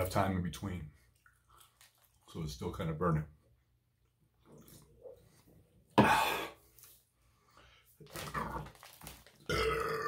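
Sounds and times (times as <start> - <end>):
man coughing: 6.0 - 6.6.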